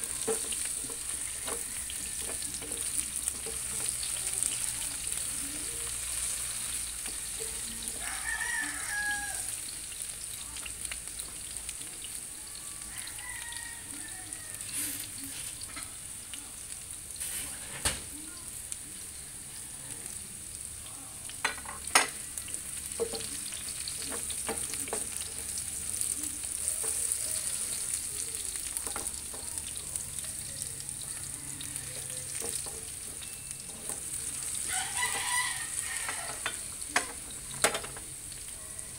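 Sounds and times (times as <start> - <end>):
vegetables sizzling in hot oil: 0.0 - 38.9
rooster crowing: 1.2 - 2.5, 7.5 - 9.7, 12.6 - 15.0, 31.0 - 32.2, 34.6 - 36.6.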